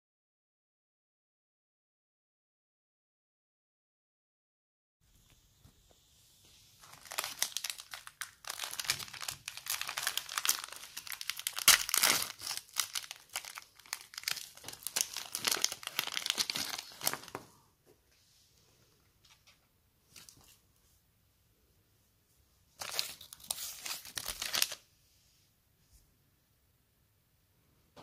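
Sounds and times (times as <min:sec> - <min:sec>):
plastic wrapper crinkling: 0:06.8 - 0:17.4, 0:22.8 - 0:24.8.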